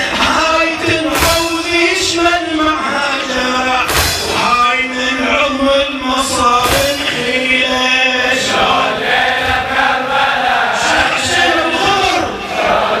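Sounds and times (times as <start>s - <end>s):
man chanting a lament: 0.0s - 8.9s, 10.7s - 13.0s
sharp strike: 3.9s - 4.7s, 6.6s - 7.4s
group chanting along: 6.2s - 13.0s.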